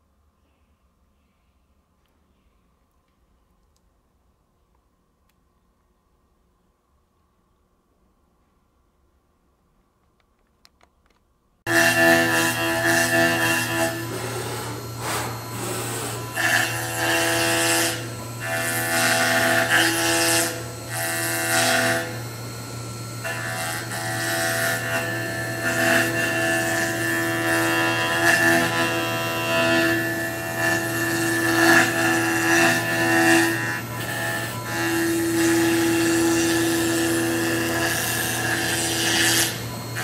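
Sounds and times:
cutter rasping through wood: 11.7 - 40.0
milling machine spindle whine: 11.7 - 40.0.

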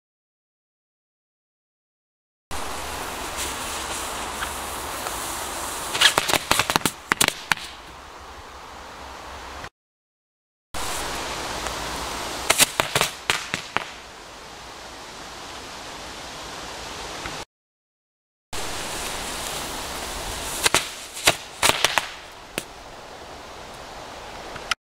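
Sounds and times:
firecracker hissing: 2.5 - 7.9, 10.8 - 14.2, 18.6 - 22.8
firecrackers cracking: 3.2 - 7.8, 12.4 - 14.1, 18.9 - 22.7.

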